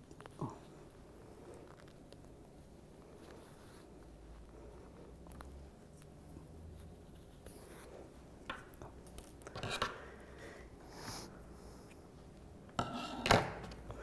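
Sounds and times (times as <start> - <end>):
fabric rustling while hand-sewing: 0.0 - 9.4.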